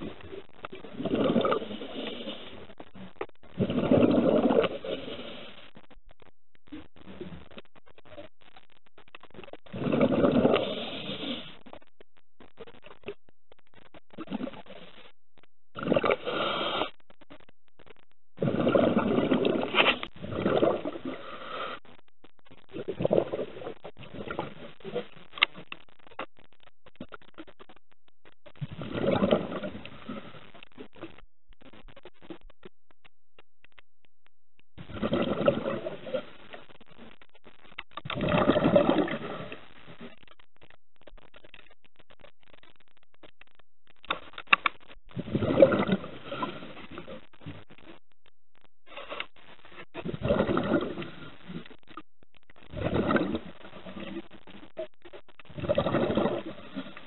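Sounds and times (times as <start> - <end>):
breath bubbles from a regulator underwater: 0.0 - 5.7, 9.6 - 11.6, 14.2 - 14.7, 15.7 - 17.0, 18.4 - 21.8, 22.7 - 25.7, 28.6 - 30.4, 34.8 - 36.4, 38.0 - 40.2, 45.2 - 47.6, 49.9 - 51.8, 52.7 - 54.3, 55.5 - 57.0
diver breathing through regulator: 3.6 - 5.7, 9.7 - 11.6, 15.9 - 17.0, 20.2 - 21.9
faint clicks: 21.8 - 28.8, 29.5 - 57.0.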